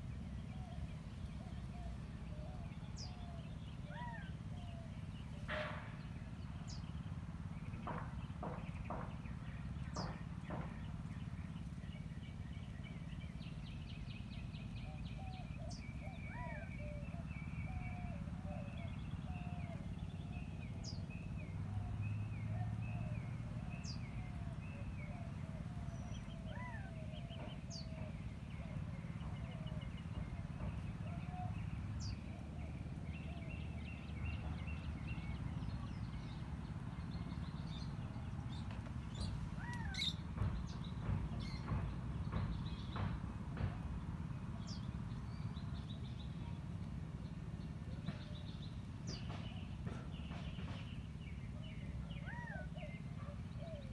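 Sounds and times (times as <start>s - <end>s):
birds chirping: 0.0s - 53.9s
sharp clicks and knocks: 7.8s - 11.0s, 38.6s - 44.8s
thin high bird calls: 38.6s - 40.2s.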